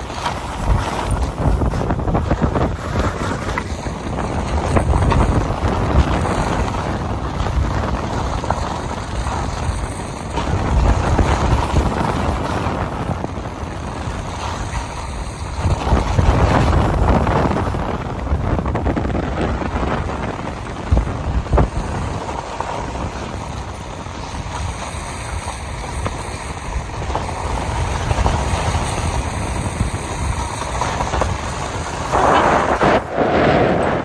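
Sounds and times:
wind rumbling on microphone: 0:00.0 - 0:34.0
skis hissing on snow: 0:30.4 - 0:34.0.

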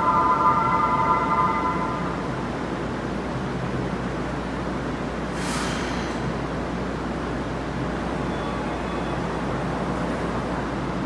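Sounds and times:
train equipment humming: 0:00.0 - 0:05.3
brief hiss: 0:05.3 - 0:06.2.

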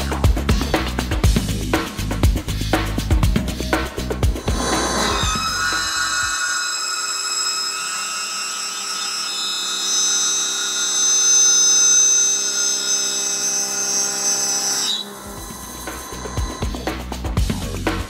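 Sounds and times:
milling machine cutting whine: 0:04.3 - 0:17.2.

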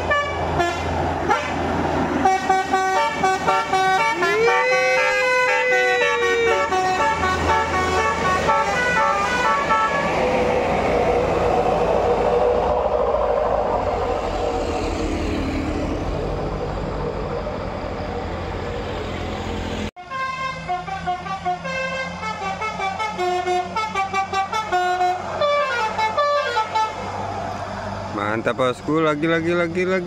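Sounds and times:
musical bus air horn: 0:00.0 - 0:01.6, 0:02.2 - 0:10.1, 0:20.0 - 0:27.1
buses driving past: 0:00.0 - 0:30.0.

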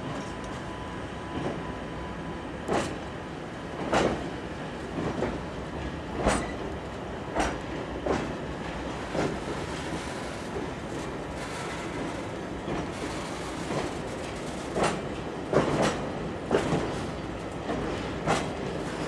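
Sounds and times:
train rumble: 0:02.6 - 0:19.0
train wheels clacking over rail joints: 0:02.7 - 0:03.0, 0:03.8 - 0:04.3, 0:06.1 - 0:06.7, 0:07.3 - 0:08.4, 0:09.0 - 0:19.0.

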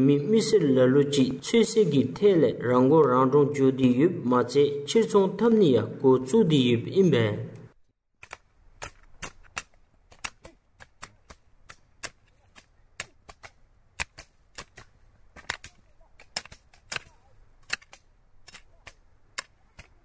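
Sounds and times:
faint background noise: 0:00.0 - 0:20.0
sharp irregular clicks: 0:08.2 - 0:20.0.

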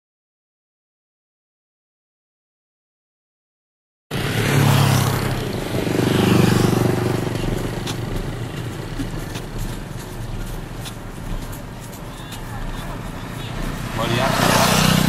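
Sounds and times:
motorcycle passing: 0:04.1 - 0:15.0.

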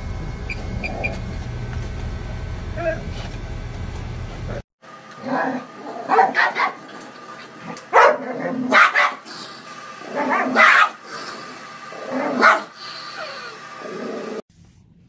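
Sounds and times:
large dog barking: 0:05.4 - 0:06.8, 0:07.9 - 0:09.2, 0:10.2 - 0:11.0, 0:12.3 - 0:12.7.

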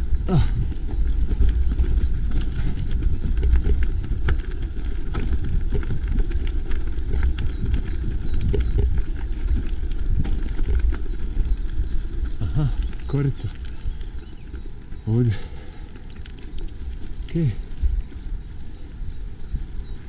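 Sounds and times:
mountain bike rattling over rocks: 0:00.1 - 0:14.6.

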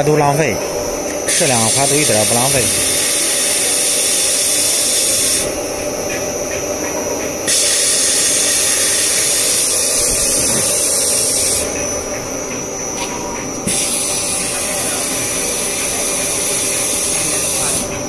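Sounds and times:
cloth cutting machine running: 0:00.0 - 0:18.0
high hiss: 0:01.1 - 0:05.6, 0:07.5 - 0:11.8, 0:13.6 - 0:17.9.

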